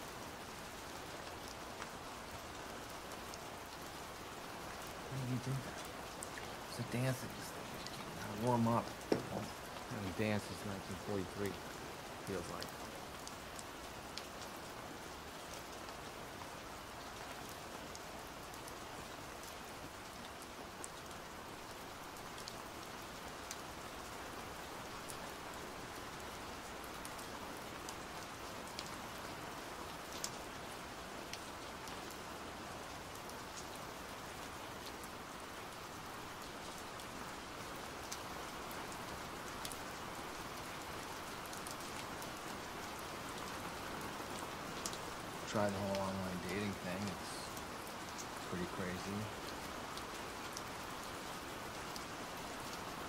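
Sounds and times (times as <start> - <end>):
pouring rain hiss: 0.0 - 53.0
raindrop ticks: 4.7 - 16.1, 30.0 - 30.6, 36.5 - 42.5, 43.3 - 51.1.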